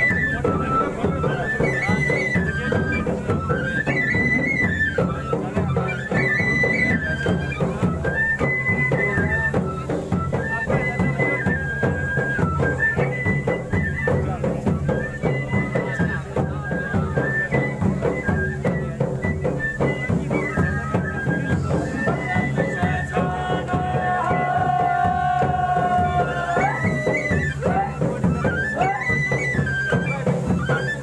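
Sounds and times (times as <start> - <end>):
repeated drumbeats: 0.0 - 31.0
wind instrument melody: 0.0 - 31.0.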